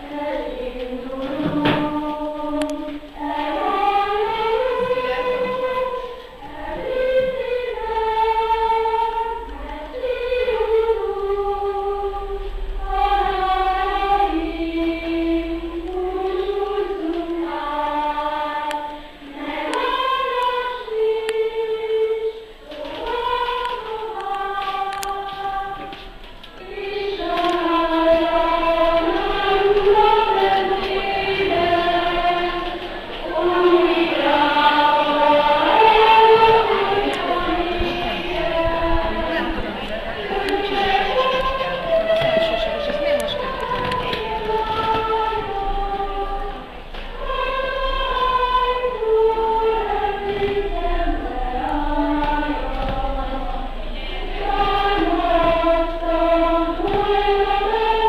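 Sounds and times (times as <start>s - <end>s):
choir of high voices singing: 0.0s - 58.0s.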